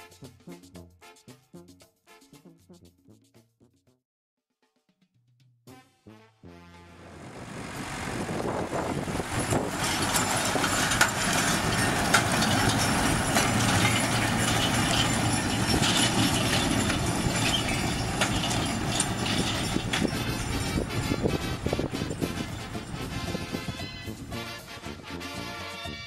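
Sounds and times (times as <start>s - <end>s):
tractor diesel engine under load: 7.0s - 24.8s
implement clattering and knocking: 9.0s - 23.7s.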